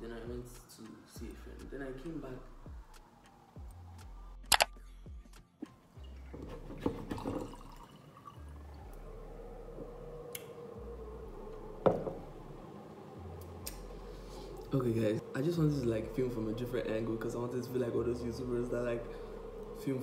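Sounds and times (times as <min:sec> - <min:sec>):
water pouring into glass: 0:06.0 - 0:09.0
glass knocking: 0:11.8 - 0:12.2.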